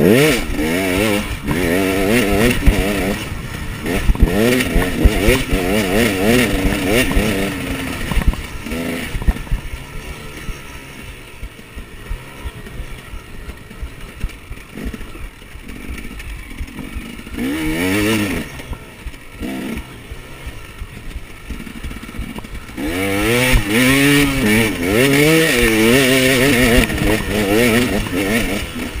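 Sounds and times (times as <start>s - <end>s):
two-stroke motorcycle engine revving: 0.0s - 29.0s.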